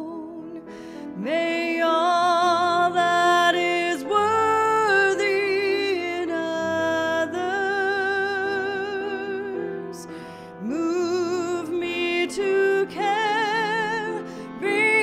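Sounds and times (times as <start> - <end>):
piano: 0.0 - 15.0
woman singing with vibrato: 1.2 - 15.0.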